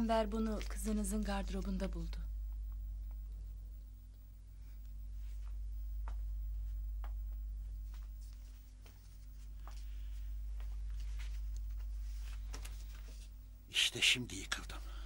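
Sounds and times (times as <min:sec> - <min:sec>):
steady low hum: 0:00.0 - 0:15.0
faint clicks and rustles: 0:04.1 - 0:13.4.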